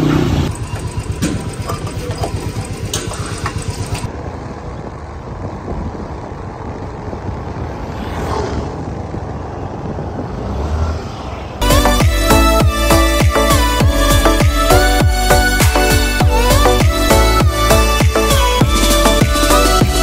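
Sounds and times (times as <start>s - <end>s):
vehicle engine running: 0.0s - 10.4s
road noise: 0.0s - 20.0s
background music: 11.6s - 20.0s.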